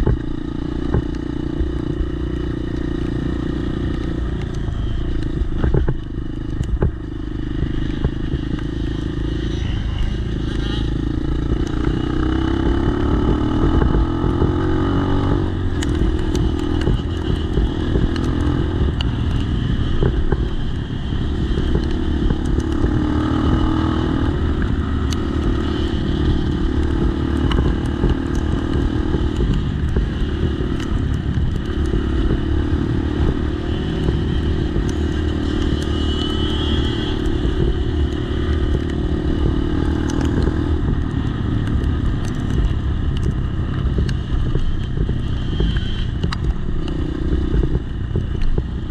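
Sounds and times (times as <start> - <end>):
dirt bike engine running: 0.0 - 48.9
light ticks and clatter: 37.5 - 48.8.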